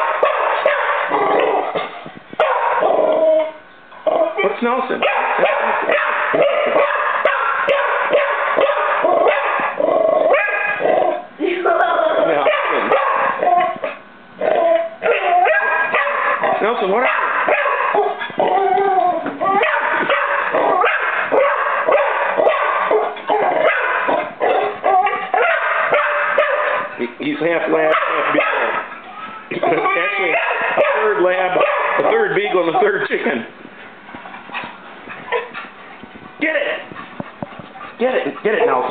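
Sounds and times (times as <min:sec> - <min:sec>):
dog barking rapidly: 0:00.0 - 0:01.7, 0:02.4 - 0:02.9, 0:05.0 - 0:10.9, 0:12.3 - 0:14.0, 0:15.0 - 0:18.5, 0:19.5 - 0:27.0, 0:27.7 - 0:28.9, 0:29.6 - 0:33.0, 0:38.0 - 0:38.9.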